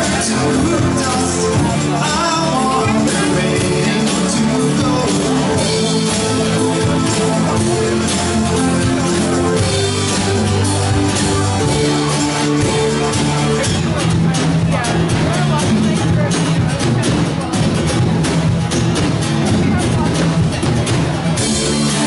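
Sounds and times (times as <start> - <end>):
person singing: 0.0 - 16.4
live rock band playing: 0.0 - 22.0.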